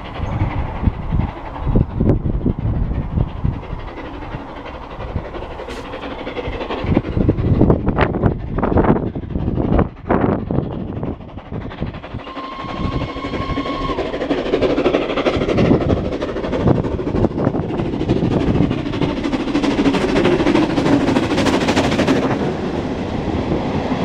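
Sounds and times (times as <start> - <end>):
steam locomotive exhaust beating: 0.0 - 24.0
train carriages rumbling on rails: 0.0 - 24.0
steam locomotive whistle: 12.2 - 14.2.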